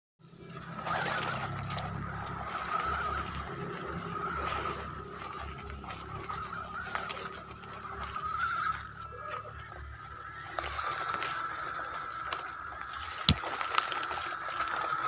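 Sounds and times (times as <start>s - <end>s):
electric motor whine: 0.2s - 15.0s
tyres crunching on gravel: 0.9s - 15.0s.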